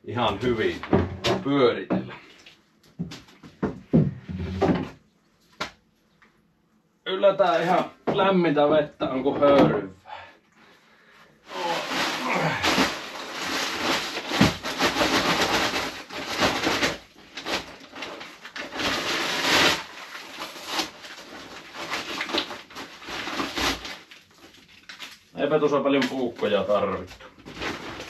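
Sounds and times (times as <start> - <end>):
paper sack rustling and tearing: 11.5 - 25.3, 26.0 - 28.0.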